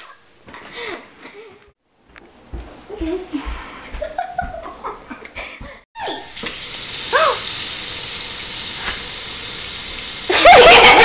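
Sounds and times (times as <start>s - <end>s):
girl laughing: 3.0s - 6.2s, 10.3s - 11.0s
running water hissing: 6.0s - 11.0s.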